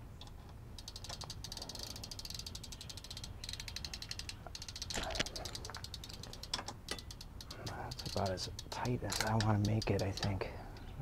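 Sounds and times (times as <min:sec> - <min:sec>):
ratchet clicking: 0:00.2 - 0:11.0.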